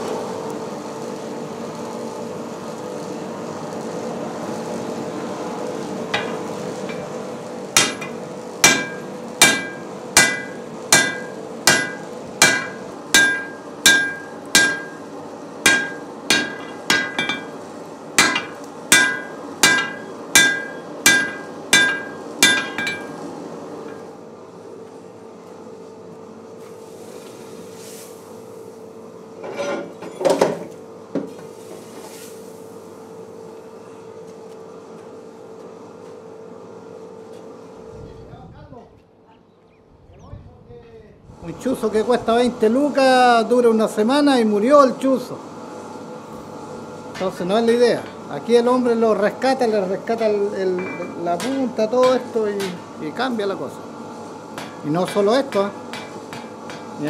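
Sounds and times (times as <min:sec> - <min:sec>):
steady hum: 0:00.0 - 0:25.8
hammer striking iron on anvil: 0:06.1 - 0:07.1, 0:07.8 - 0:17.6, 0:18.2 - 0:23.2, 0:50.2 - 0:52.8, 0:54.6 - 0:56.9.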